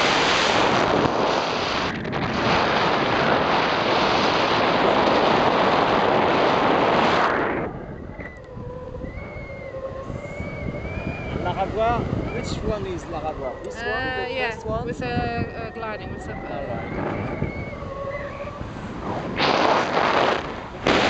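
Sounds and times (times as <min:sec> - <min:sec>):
wind buffeting microphone: 0:00.0 - 0:21.0
faint wavering tone: 0:07.8 - 0:19.0.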